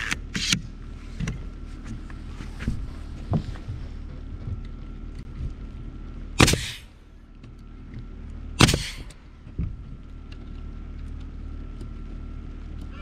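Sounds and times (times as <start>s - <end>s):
nail gun firing bang: 6.4s - 6.9s, 8.6s - 9.1s
exhaust air hiss: 6.4s - 7.0s, 8.6s - 9.3s.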